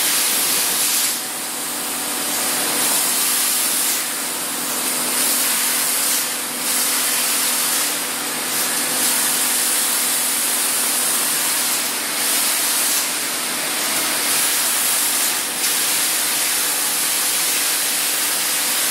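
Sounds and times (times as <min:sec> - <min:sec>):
arc welding hiss: 0:00.0 - 0:01.2.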